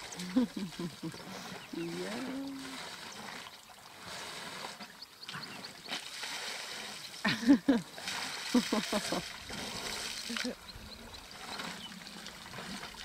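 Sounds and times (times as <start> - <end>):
elephant vocal sound: 0.0 - 3.4
water trickling and splashing: 0.0 - 13.0.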